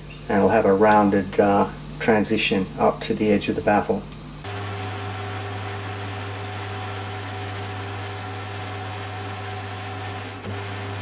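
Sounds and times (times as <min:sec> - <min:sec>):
metal lathe running: 0:00.0 - 0:11.0
cutting tool cutting metal: 0:05.6 - 0:10.5.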